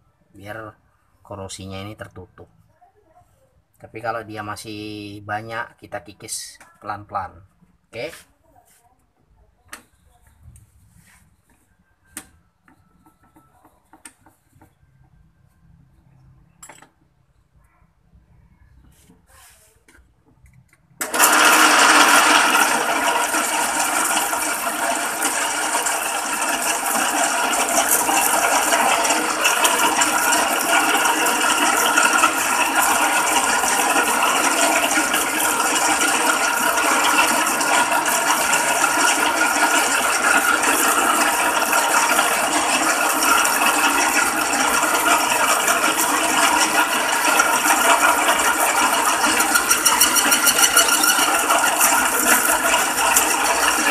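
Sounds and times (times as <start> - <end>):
metal lathe running: 21.0 - 53.9
cutting tool on aluminium: 47.6 - 53.9.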